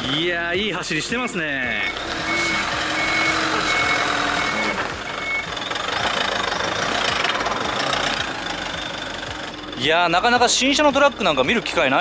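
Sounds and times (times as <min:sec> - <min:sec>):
diesel truck engine running: 0:00.0 - 0:12.0
reversing alarm beeping: 0:01.6 - 0:06.4.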